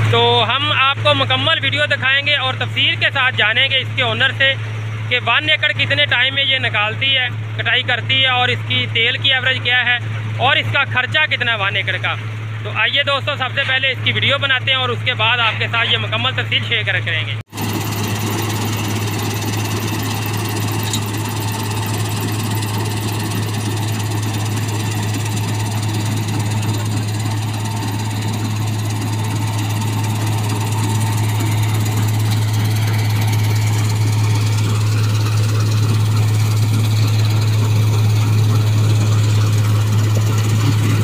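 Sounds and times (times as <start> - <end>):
combine harvester running: 17.5 - 41.0.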